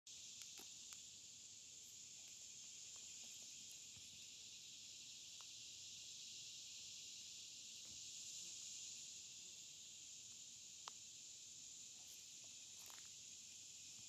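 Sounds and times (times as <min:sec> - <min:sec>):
faint high hiss: 0:00.1 - 0:14.0
faint ticks: 0:00.2 - 0:01.1, 0:05.3 - 0:05.6, 0:10.2 - 0:11.1.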